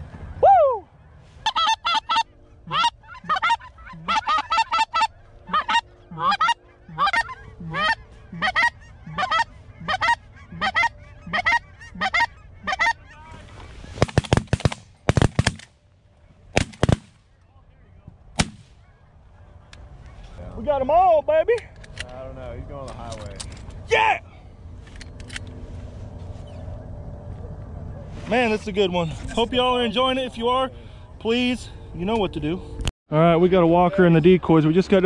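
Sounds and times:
geese honking: 0:01.0 - 0:14.1
suppressed shotgun shots: 0:14.0 - 0:15.7, 0:16.6 - 0:17.2, 0:18.4 - 0:18.8.

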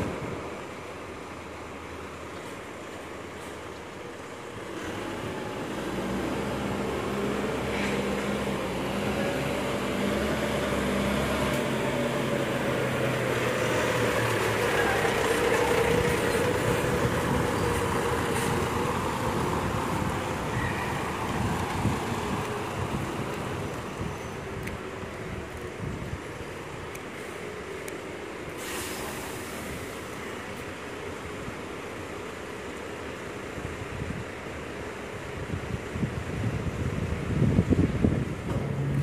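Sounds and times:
diesel truck passing by: 0:04.3 - 0:27.7, 0:34.9 - 0:39.0.

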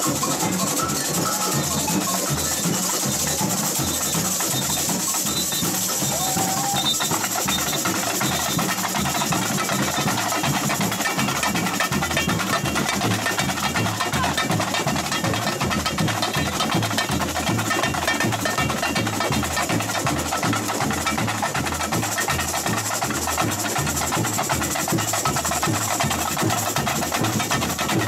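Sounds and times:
voices: 0:00.0 - 0:20.4
samba drums and shakers: 0:00.0 - 0:28.0.

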